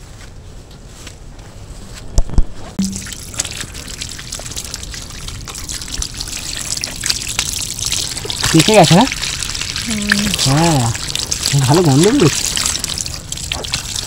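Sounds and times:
water running from hose: 2.8s - 14.0s.

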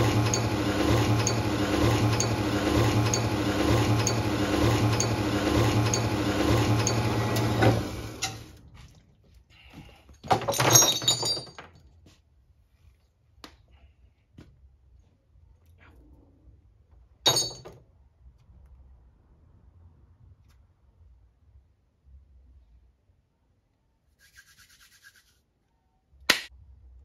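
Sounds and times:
bandsaw cutting steel tube: 0.0s - 8.5s
metal clinking: 10.4s - 11.8s, 17.3s - 17.8s.

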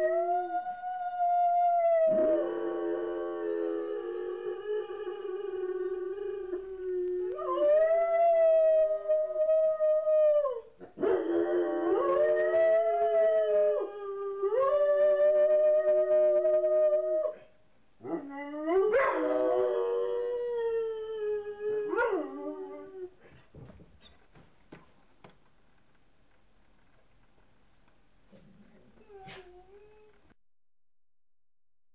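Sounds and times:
dogs howling: 0.0s - 23.2s.

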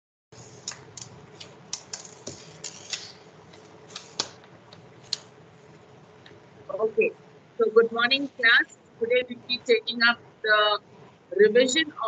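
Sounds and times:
faint steady hum: 0.3s - 12.0s
keyboard keys clicking: 0.4s - 5.3s.

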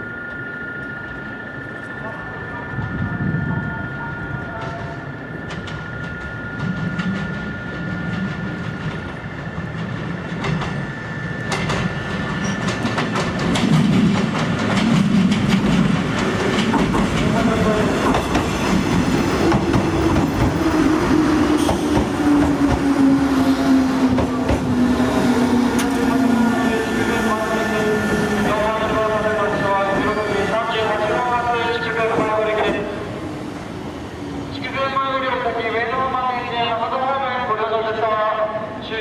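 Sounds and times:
train wheels clicking over rail joints: 5.4s - 20.6s.

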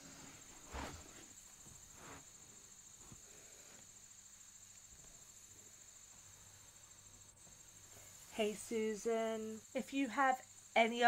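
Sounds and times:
faint high-pitched whine: 0.0s - 11.0s.

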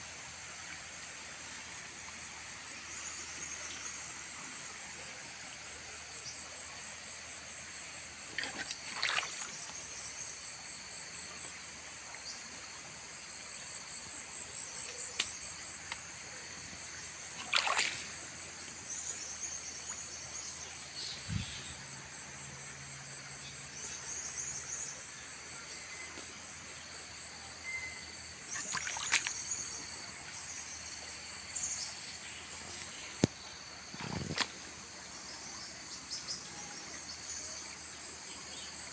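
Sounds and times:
insect chorus: 0.0s - 38.9s
river rushing: 17.4s - 18.1s.

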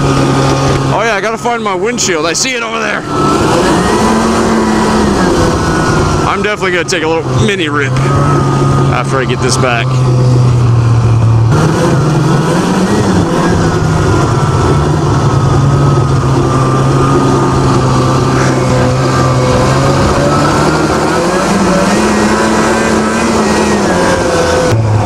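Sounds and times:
snowmobile engine running: 0.0s - 25.0s.

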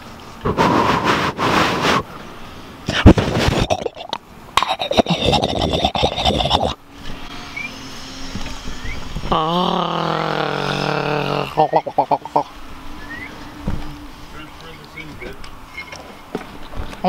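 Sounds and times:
scraping and rustling: 2.9s - 3.7s.

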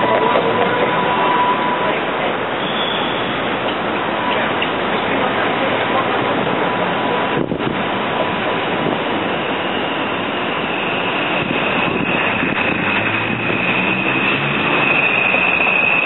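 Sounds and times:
thin high whine: 0.0s - 3.5s, 9.3s - 16.0s
streetcar rumbling on rails: 0.0s - 16.0s.

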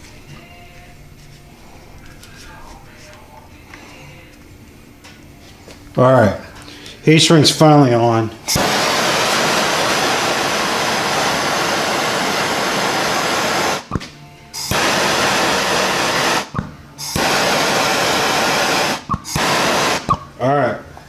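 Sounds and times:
propane torch flame hissing: 8.4s - 13.9s, 14.5s - 20.2s.

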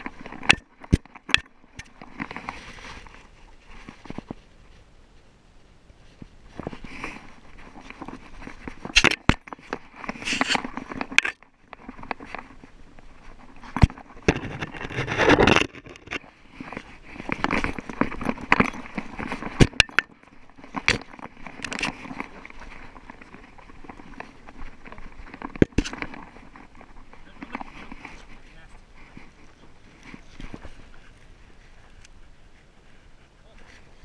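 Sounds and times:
fur rubbing on microphone: 2.3s - 4.8s, 10.0s - 10.8s, 12.3s - 19.6s
twigs crackling: 6.0s - 34.0s
scrapes and sharp clicks: 6.6s - 12.6s, 13.4s - 29.2s.

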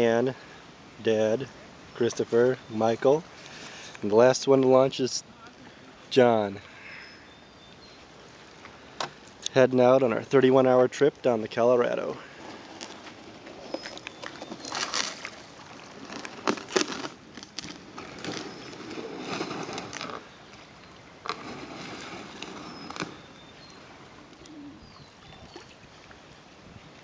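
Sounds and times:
faint bird chirps: 6.6s - 8.1s
paddle strokes splashing: 12.2s - 27.0s
water lapping around boat: 12.2s - 27.0s.

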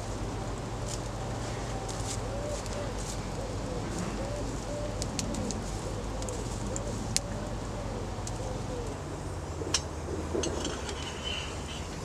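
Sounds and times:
pigeon cooing: 1.3s - 9.8s
campfire crackling and popping: 5.0s - 5.6s.

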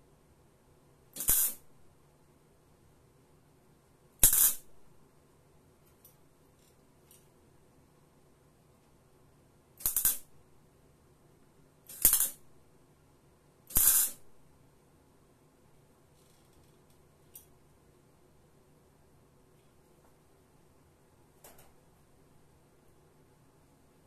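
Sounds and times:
welding arc bursts: 1.2s - 1.6s, 9.8s - 10.3s, 13.7s - 14.2s.

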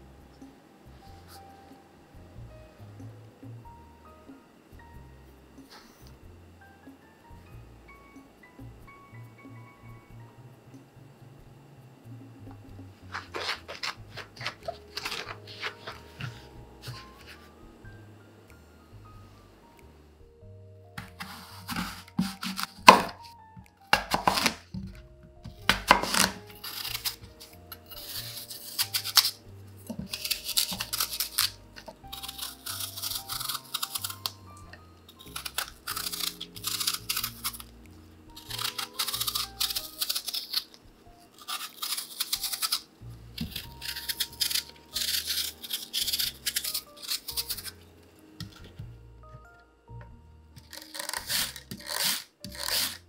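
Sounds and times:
soft background music: 0.0s - 53.0s
knife peeling apple skin: 13.0s - 17.5s, 21.0s - 48.9s, 50.6s - 53.0s
knife cutting onto wooden board: 13.1s - 17.4s, 21.0s - 23.3s, 23.9s - 25.0s, 25.6s - 34.3s, 50.6s - 53.0s.

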